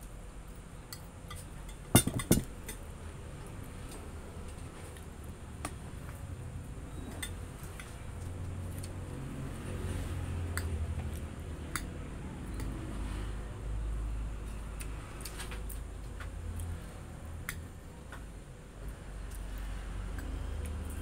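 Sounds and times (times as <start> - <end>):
muffled chewing: 7.6 - 9.2.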